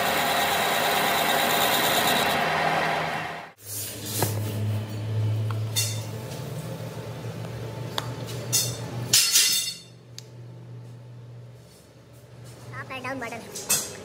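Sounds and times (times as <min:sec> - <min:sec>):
machine motor hum: 0:00.0 - 0:03.5.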